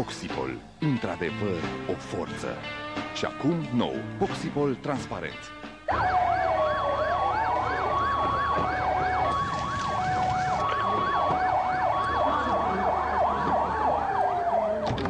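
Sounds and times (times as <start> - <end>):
two-tone hi-lo siren: 5.9 - 15.0
wailing siren: 5.9 - 15.0
yelp siren: 5.9 - 15.0.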